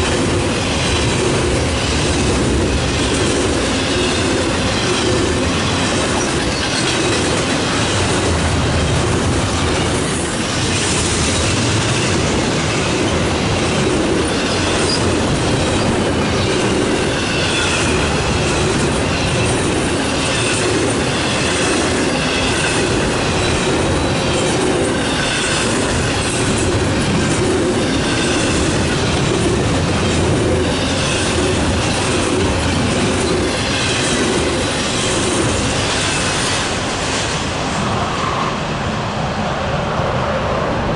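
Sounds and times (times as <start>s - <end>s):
train wheels rumbling on rail: 0.0s - 40.9s
high wheel squeal: 3.8s - 7.3s, 14.2s - 26.4s.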